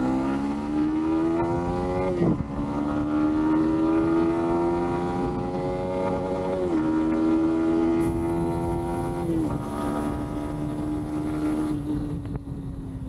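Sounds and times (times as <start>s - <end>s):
motorcycle engine accelerating: 0.0s - 13.0s.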